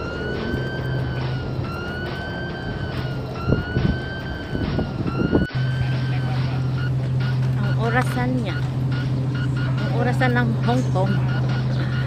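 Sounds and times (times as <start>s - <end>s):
high siren-like tone rising and falling: 0.0s - 6.9s
low bumps: 0.0s - 12.0s
steady low hum: 0.0s - 12.0s.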